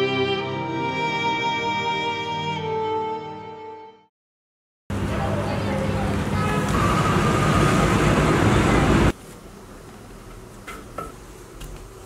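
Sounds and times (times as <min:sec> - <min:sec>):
loud mechanical rumble: 0:04.9 - 0:09.2.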